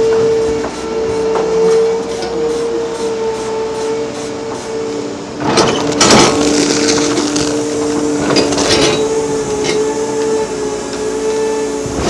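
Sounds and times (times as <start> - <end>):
excavator mechanical whine: 0.0 - 12.0
loud scraping and knocking: 5.4 - 9.9.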